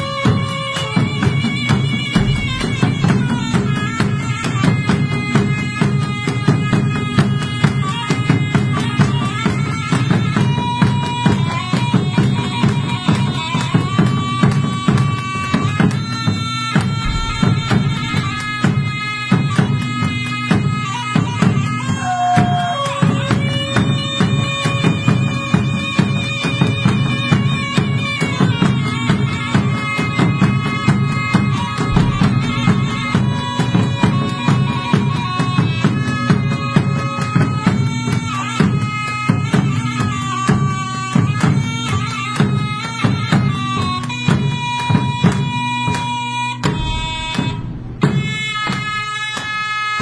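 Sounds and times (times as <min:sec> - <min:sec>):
reedy wind melody: 0:00.0 - 0:07.8, 0:11.2 - 0:37.7, 0:46.4 - 0:50.0
drums beating steady rhythm: 0:00.0 - 0:50.0.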